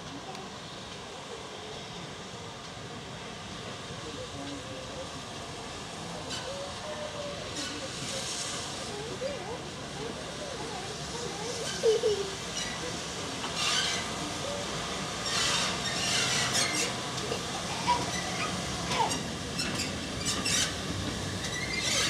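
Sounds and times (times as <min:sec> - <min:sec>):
train wheels rumbling on rails: 0:00.0 - 0:22.0
steam hissing: 0:00.2 - 0:22.0
wheel squeals: 0:15.3 - 0:22.0.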